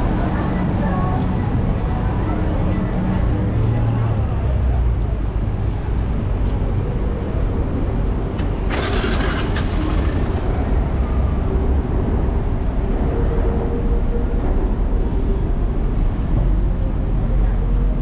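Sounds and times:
traffic rumble: 0.0 - 18.0.

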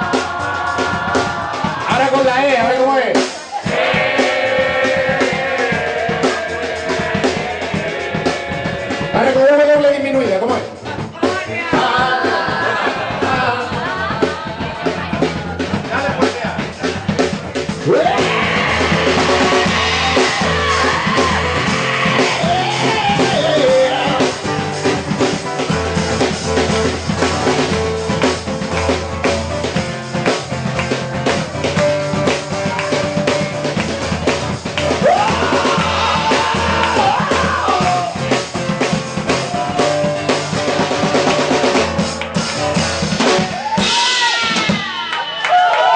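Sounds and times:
live band playing: 0.0 - 45.9
person singing: 17.8 - 24.5, 35.0 - 38.3.

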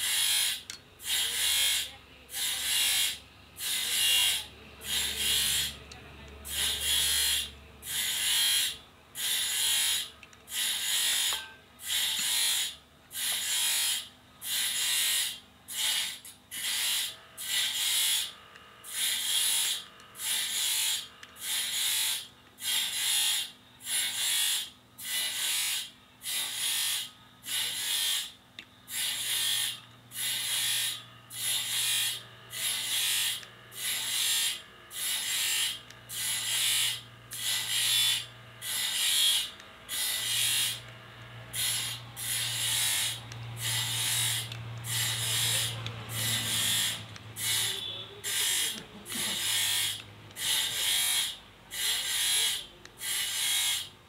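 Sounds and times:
hand file rasping belt: 41.6 - 53.9.

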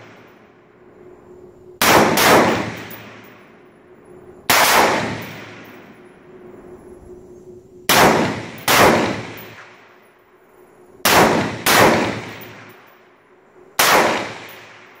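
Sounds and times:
rifle shots echoing: 1.8 - 3.3, 4.5 - 5.9, 7.9 - 9.8, 11.0 - 12.9, 13.8 - 15.0.

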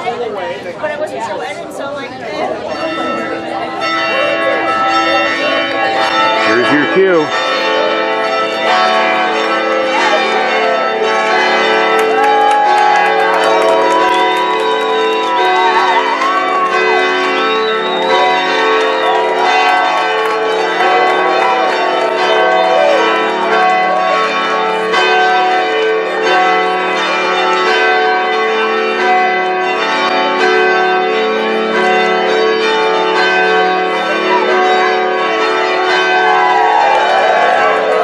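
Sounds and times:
voices: 0.0 - 7.4
church bells pealing: 0.0 - 38.0.

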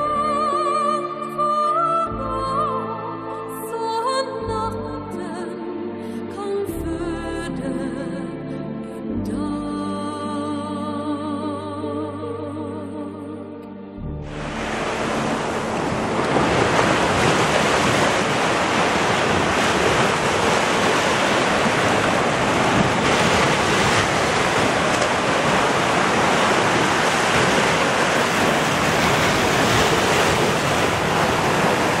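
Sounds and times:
ocean waves breaking: 14.2 - 32.0.

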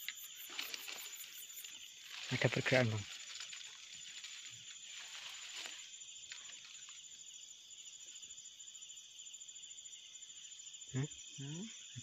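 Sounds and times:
night insects chorus: 0.0 - 12.0
leaves rustling: 0.3 - 7.3.

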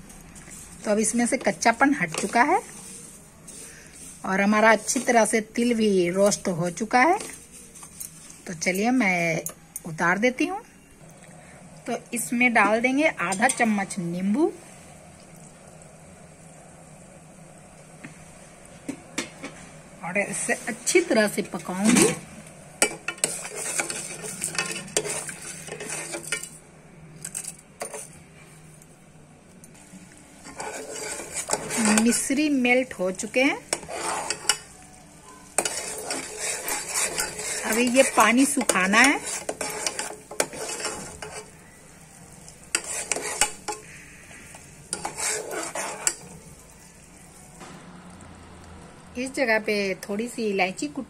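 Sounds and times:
syrup sizzling: 0.0 - 9.2, 11.1 - 28.3, 29.4 - 50.4
metal ladle scraping a pan: 0.4 - 8.8, 22.8 - 26.6, 27.2 - 28.2, 30.4 - 34.8, 35.4 - 41.6, 42.6 - 47.2.

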